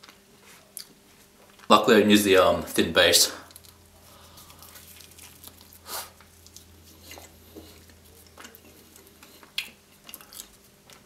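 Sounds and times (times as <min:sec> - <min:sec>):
chewing mouth sounds: 0:03.5 - 0:11.0.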